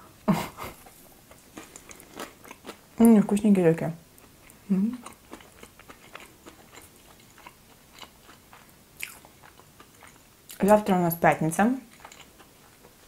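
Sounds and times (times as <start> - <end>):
chewing waffle with soft crunching: 0.6 - 3.1, 4.1 - 10.7, 11.8 - 13.0.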